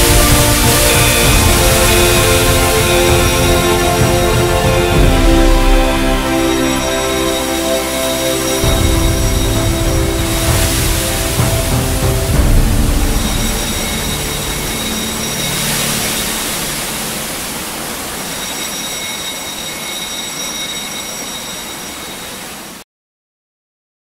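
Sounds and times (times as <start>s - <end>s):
low droning tone: 0.0s - 18.2s
water spraying from sprinklers: 0.0s - 22.8s.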